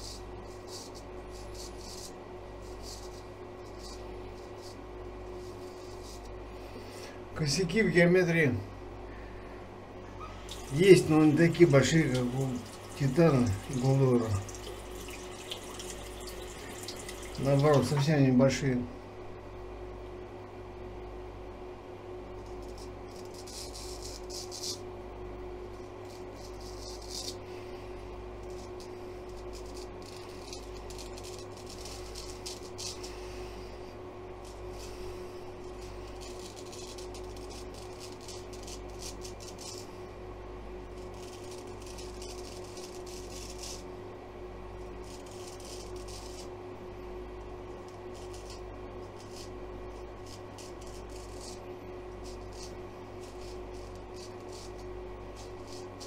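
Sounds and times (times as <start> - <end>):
razor scraping stubble: 0.0 - 7.1, 10.3 - 18.1, 22.4 - 24.9, 25.7 - 27.8, 28.4 - 33.8, 34.4 - 40.0, 40.9 - 43.9, 44.9 - 46.6, 47.8 - 56.0
steady hum: 0.0 - 56.0.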